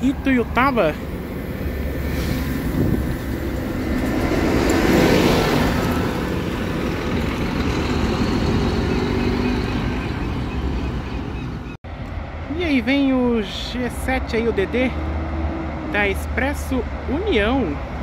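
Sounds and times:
bus engine passing: 0:00.0 - 0:18.0
road noise: 0:00.0 - 0:18.0.

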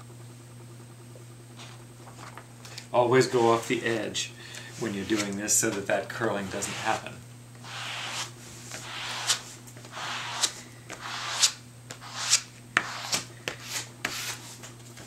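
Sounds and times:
plastic spreader scraping paper: 0:04.8 - 0:14.4.

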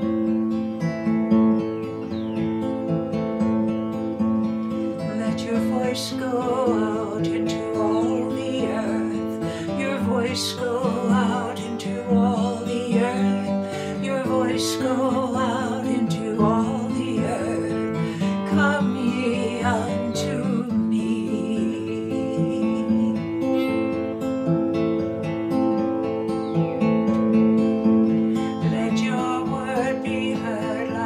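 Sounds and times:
acoustic guitar: 0:00.0 - 0:31.0
woman singing with vibrato: 0:05.0 - 0:24.1, 0:28.4 - 0:31.0.

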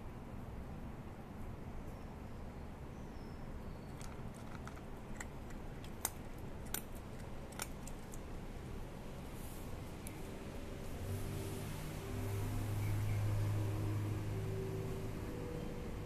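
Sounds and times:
low background hum: 0:00.0 - 0:16.0
cat crunching dry kibble: 0:04.0 - 0:08.4.

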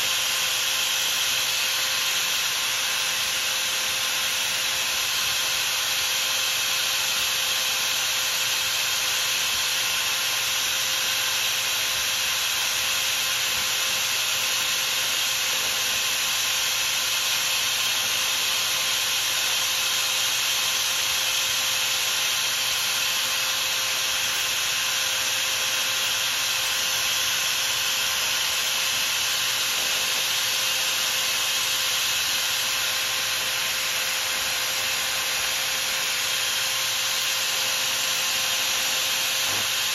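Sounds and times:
file rubbing on spinning brass: 0:00.0 - 0:39.9
small motor hum: 0:00.0 - 0:39.9.

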